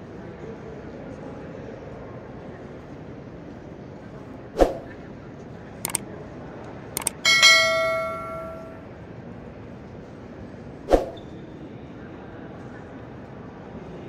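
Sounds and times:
mouse clicks: 7.0 - 7.2
bright bell ding: 7.0 - 8.8.

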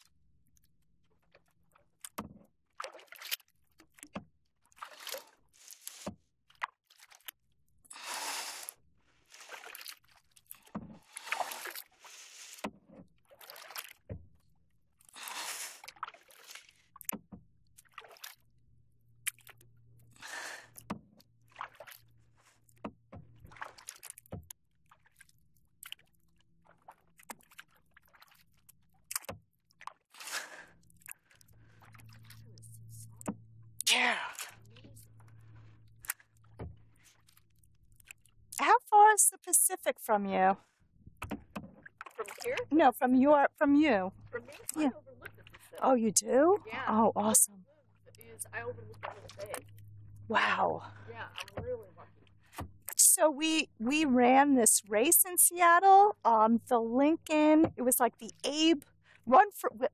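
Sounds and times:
kayak paddle splashing in water: 2.0 - 14.2, 15.1 - 18.4, 21.5 - 32.4
water dripping: 30.8 - 38.6.

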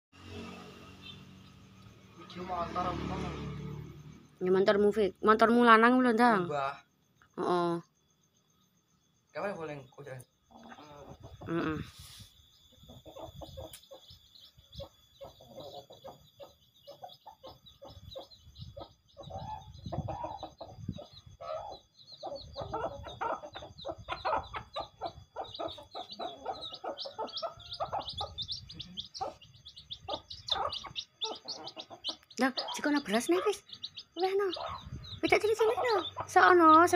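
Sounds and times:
chickens clucking: 10.5 - 36.9
chicks peeping: 10.5 - 36.9.

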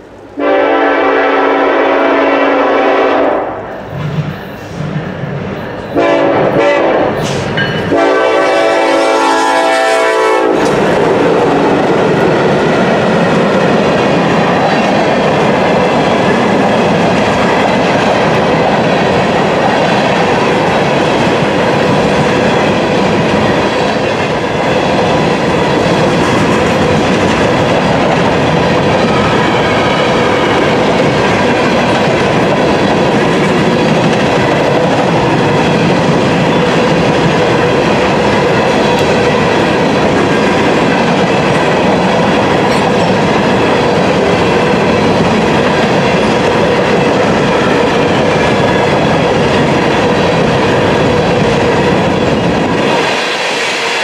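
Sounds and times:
locomotive horn: 0.4 - 3.6, 6.0 - 7.3, 7.9 - 10.8
steel wheels rolling on rails: 3.8 - 8.3, 10.5 - 54.0.

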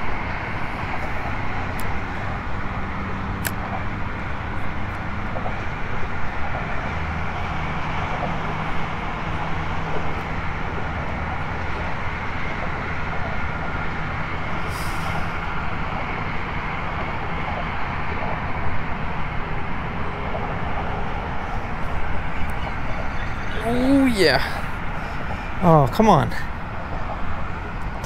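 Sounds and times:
road traffic drone: 0.0 - 28.0
brief high hiss: 14.7 - 15.3.

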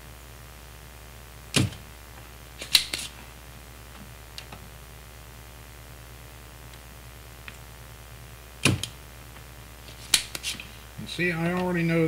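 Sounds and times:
desoldering pump plunger snap: 2.6 - 3.1.

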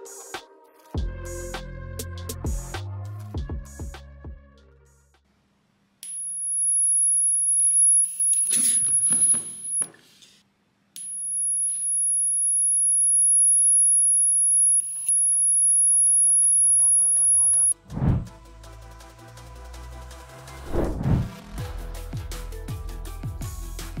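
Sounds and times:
high-pitched electrical whine: 6.0 - 9.9, 11.0 - 18.3.

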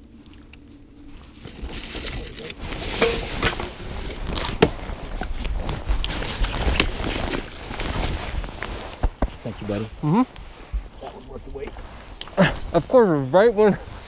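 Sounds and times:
clothing rustle: 0.9 - 14.0
camera handling rumble: 1.3 - 9.4.

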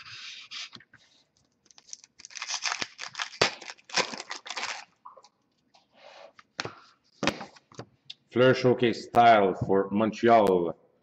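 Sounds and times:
foil wrapper crinkling and tearing: 1.6 - 5.0.

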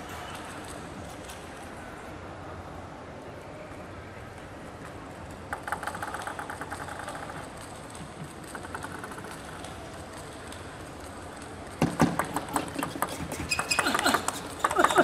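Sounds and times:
table tennis ball bouncing: 5.5 - 9.7, 11.8 - 15.0.

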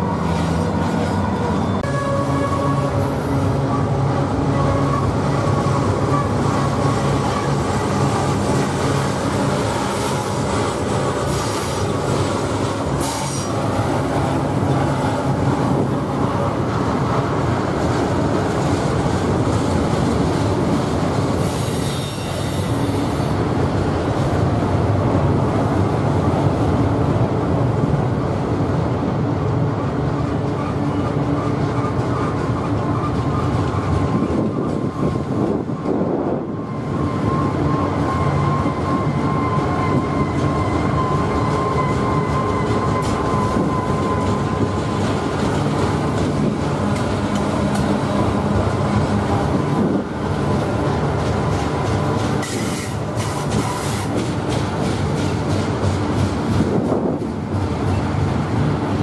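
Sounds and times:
freight train wheels rumbling: 0.0 - 59.0
high wheel squeals: 36.4 - 44.8.

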